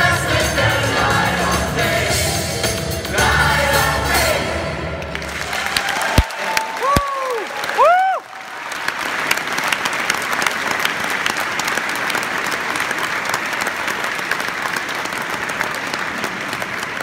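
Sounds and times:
audience applauding: 5.0 - 17.0.

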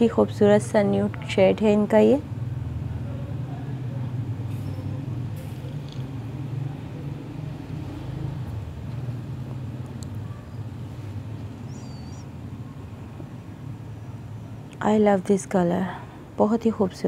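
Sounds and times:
high chirp: 11.6 - 12.8.

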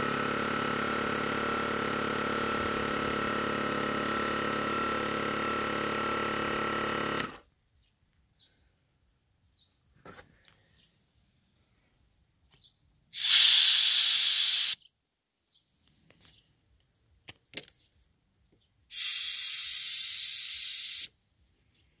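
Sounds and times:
compressed air hissing: 13.2 - 14.8, 18.9 - 21.1.

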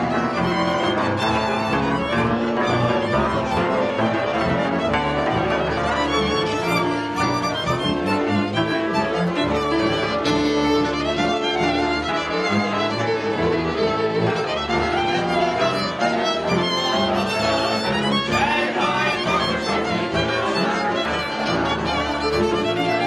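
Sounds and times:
folk string band playing: 0.0 - 23.0.

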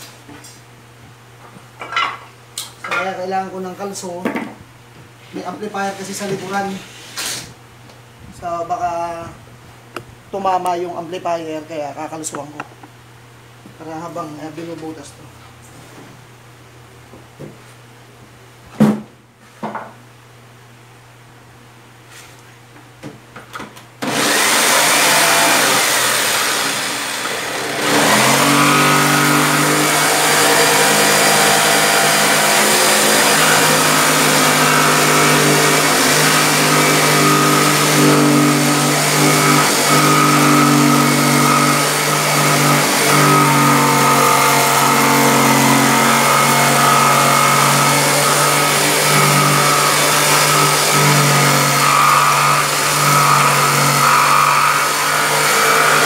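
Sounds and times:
jigsaw cutting wood: 24.0 - 56.0.

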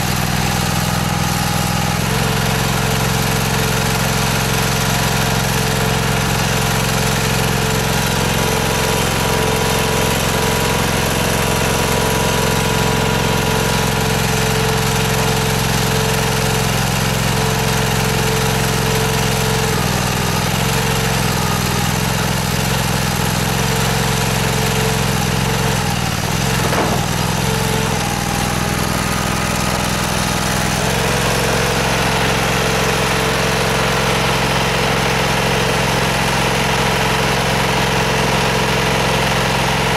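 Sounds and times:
small engine running: 0.0 - 39.9
stone cracking: 26.3 - 27.7.

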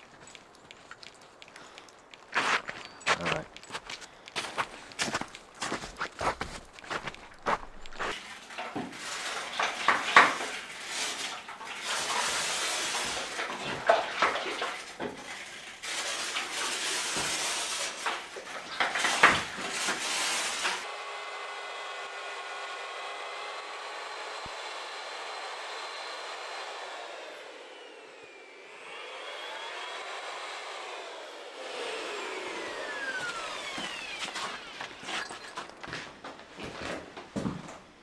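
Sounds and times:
scrubbing on stone floor: 0.0 - 20.8, 32.9 - 37.0.

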